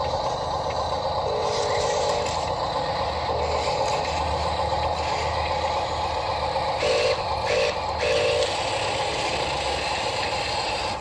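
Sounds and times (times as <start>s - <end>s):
motor whine spurts: 0.0s - 11.0s
toy truck motors whirring: 0.0s - 11.0s.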